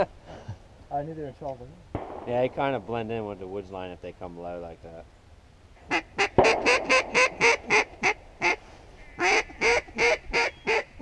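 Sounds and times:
duck quacking: 5.9s - 11.0s.

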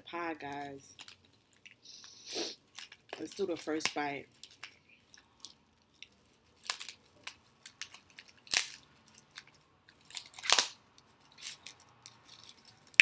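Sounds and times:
utensils and packaging crinkling: 0.0s - 13.0s.

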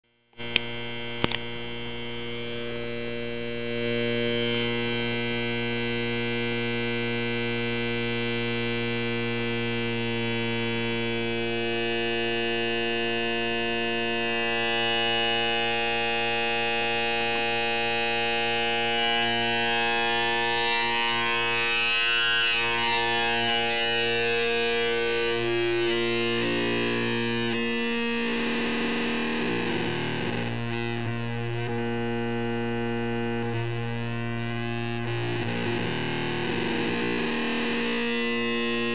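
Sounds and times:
low buzzy synth tone: 0.4s - 38.9s
clicks: 0.5s - 1.5s.

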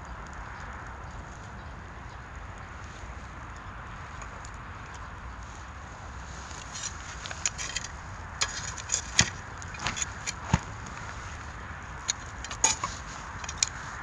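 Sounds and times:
metal tongs clicking on pine cones: 6.4s - 14.0s.

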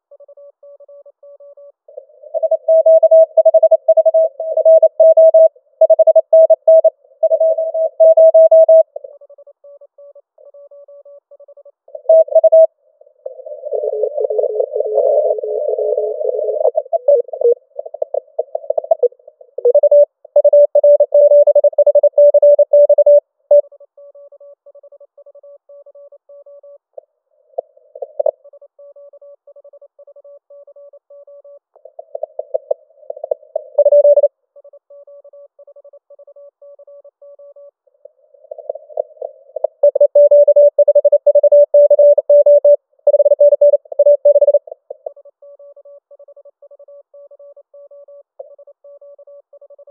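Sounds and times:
morse code tone: 2.3s - 8.9s, 13.7s - 23.6s, 32.0s - 34.3s, 38.5s - 44.6s
radio band noise: 13.2s - 19.1s.

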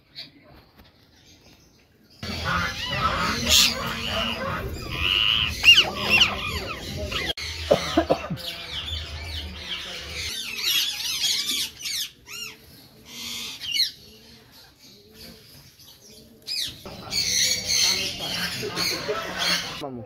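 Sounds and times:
birds chirping: 1.0s - 20.0s.

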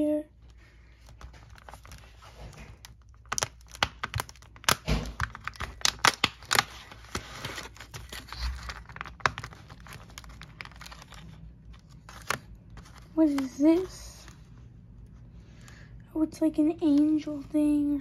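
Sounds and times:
cardboard tearing and crinkling: 1.0s - 14.4s.

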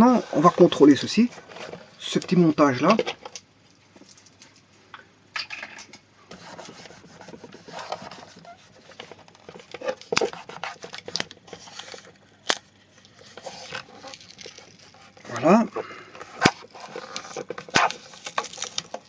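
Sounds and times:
scraping and rustling: 0.0s - 4.7s, 6.3s - 19.0s
hands rubbing adhesive tape: 6.3s - 19.0s.

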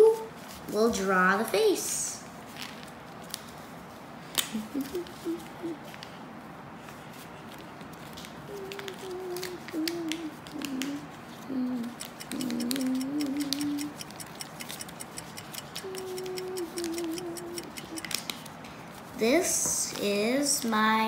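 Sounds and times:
paper crinkling and folding: 2.4s - 4.0s, 6.8s - 13.8s
child humming: 4.6s - 5.9s, 8.5s - 14.0s, 15.7s - 18.2s.

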